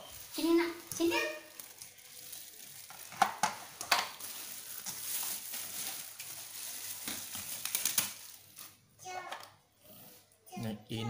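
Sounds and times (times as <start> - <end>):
plastic clacks on tile floor: 2.8 - 9.6.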